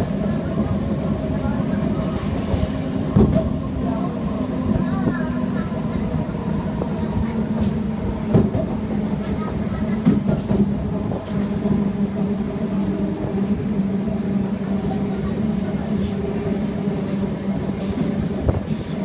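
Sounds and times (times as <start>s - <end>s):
train rumbling along track: 0.0s - 19.0s.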